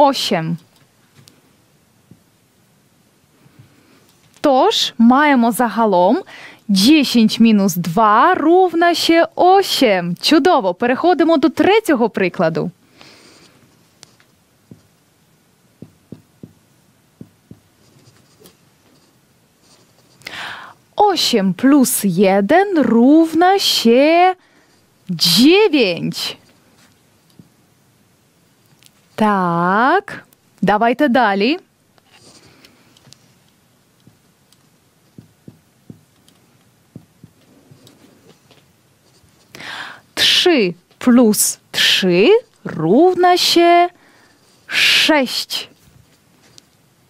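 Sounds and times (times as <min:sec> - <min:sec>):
marker tapping on whiteboard: 0:15.8 - 0:16.6, 0:17.2 - 0:17.7, 0:35.1 - 0:36.3, 0:36.9 - 0:37.5
marker writing on whiteboard: 0:15.8 - 0:16.6, 0:17.2 - 0:20.1, 0:35.1 - 0:38.4.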